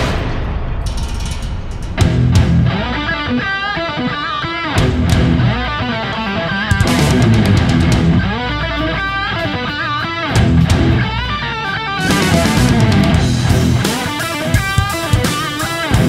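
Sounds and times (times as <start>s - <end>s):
bass and drums: 0.0s - 16.0s
distorted electric guitar lead: 0.0s - 16.0s.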